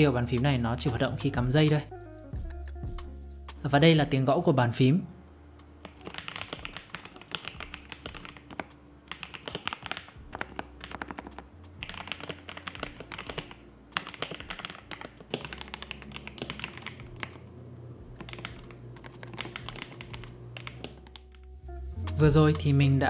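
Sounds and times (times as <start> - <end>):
mechanical keyboard typing: 5.8 - 17.5, 18.1 - 21.4.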